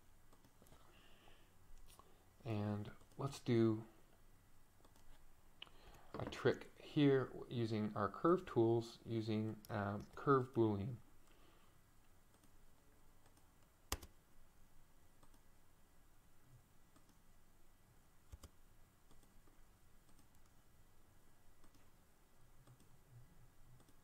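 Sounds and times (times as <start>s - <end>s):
computer mouse clicks: 0.3s - 0.8s, 4.8s - 6.1s, 12.3s - 12.6s, 13.2s - 14.2s, 15.2s - 15.5s, 16.9s - 17.2s, 18.3s - 20.6s, 21.6s - 21.9s, 22.6s - 23.0s, 23.7s - 24.0s.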